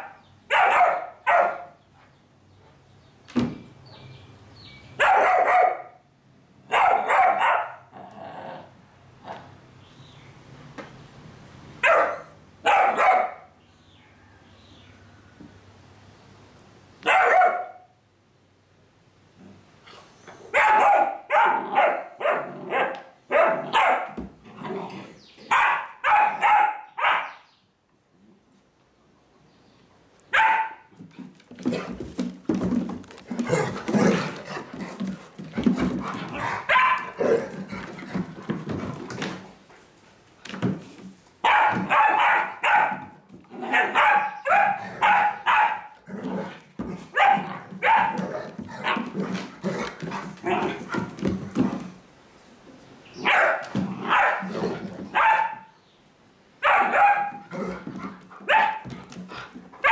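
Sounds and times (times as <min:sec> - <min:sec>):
dogs play barking: 0:00.0 - 0:01.8, 0:04.9 - 0:06.0, 0:06.6 - 0:08.6, 0:11.8 - 0:13.6, 0:17.0 - 0:18.0, 0:20.4 - 0:27.4, 0:30.3 - 0:39.6, 0:41.4 - 0:52.0, 0:53.2 - 0:55.8, 0:56.6 - 0:59.9
dogs scuffling on wooden floor: 0:30.9 - 0:42.0, 0:46.2 - 0:52.1.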